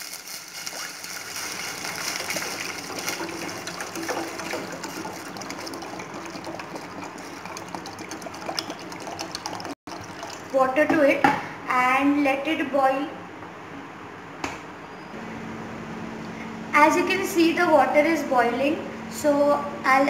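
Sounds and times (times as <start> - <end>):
water pouring into a steel bowl: 0.0 - 10.9.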